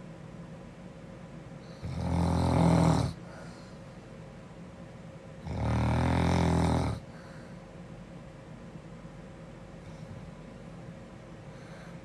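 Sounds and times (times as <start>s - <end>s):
girl snoring: 1.8s - 3.2s, 5.4s - 7.1s
soft breath: 3.2s - 4.3s, 7.0s - 7.8s, 9.8s - 12.0s.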